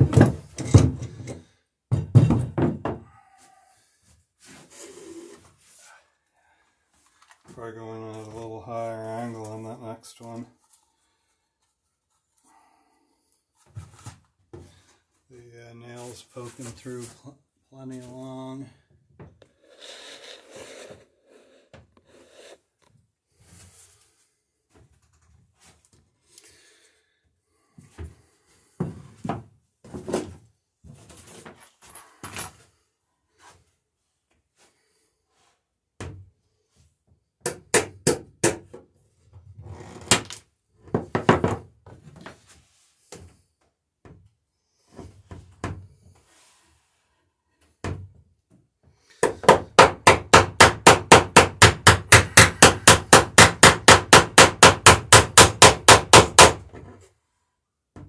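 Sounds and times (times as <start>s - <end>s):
knocks and tool clatter: 0.0s - 3.2s, 28.8s - 32.7s, 40.2s - 43.4s.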